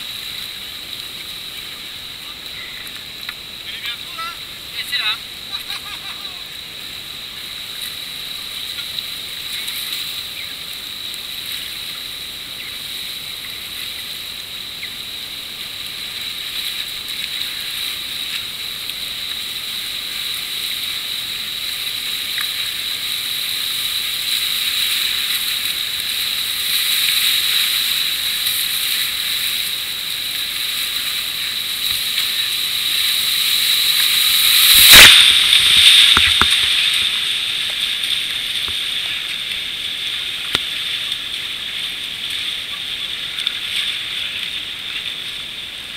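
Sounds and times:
whitewater rapids rushing: 0:00.0 - 0:08.2, 0:15.0 - 0:45.0
loud splash: 0:22.2 - 0:39.0.

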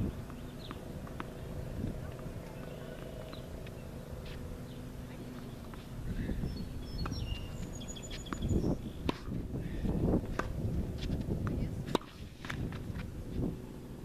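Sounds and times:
tennis balls struck by rackets: 0:00.0 - 0:06.0, 0:06.9 - 0:13.5
tennis balls bouncing on hard court: 0:00.1 - 0:05.9, 0:06.9 - 0:09.4, 0:10.0 - 0:13.1
bird chirping: 0:06.4 - 0:09.1.

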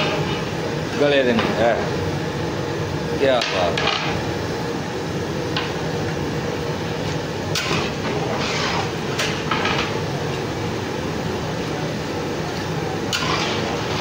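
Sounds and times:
metal ladle scraping a pot: 0:07.6 - 0:08.9, 0:13.1 - 0:14.0.

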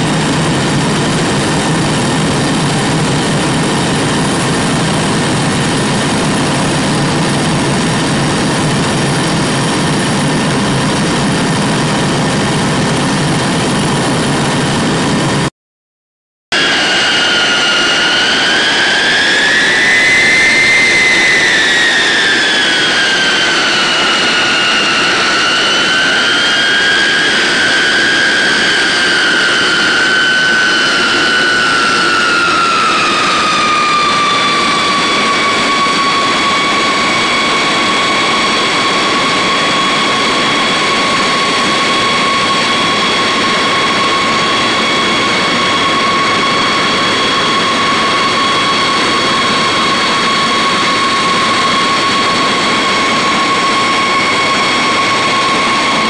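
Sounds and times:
jet engines whining: 0:00.0 - 0:15.5, 0:16.5 - 0:56.0.

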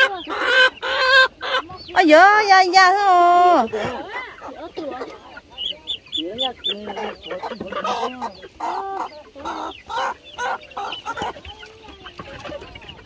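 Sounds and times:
chickens clucking and squawking: 0:00.0 - 0:13.0.

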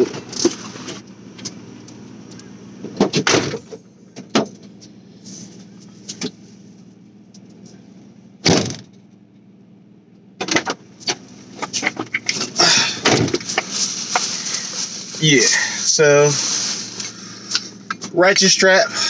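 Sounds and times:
car door clunks: 0:02.8 - 0:04.8, 0:08.4 - 0:09.0, 0:10.4 - 0:13.7
car door slamming: 0:08.4 - 0:09.0, 0:12.4 - 0:13.7.

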